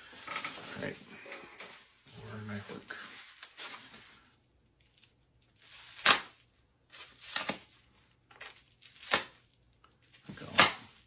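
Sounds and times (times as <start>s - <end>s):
blade ripping through tape: 5.6s - 6.5s, 7.2s - 7.7s, 8.8s - 9.4s.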